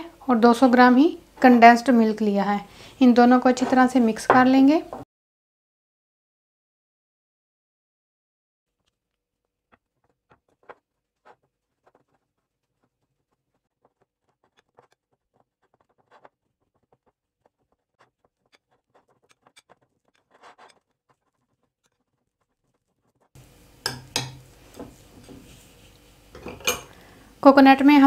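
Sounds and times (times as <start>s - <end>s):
spoon scraping glass bowl: 9.8s - 26.8s.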